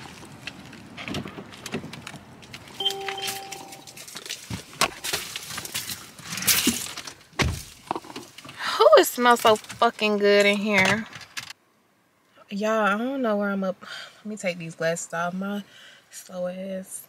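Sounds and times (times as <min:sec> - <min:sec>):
handling noises and clicks: 0:00.0 - 0:07.2
electronic beep: 0:02.8 - 0:04.0.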